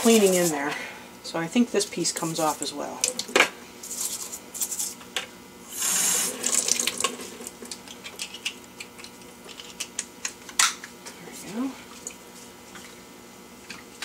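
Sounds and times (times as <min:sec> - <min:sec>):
tap water gushing: 0:05.7 - 0:07.8.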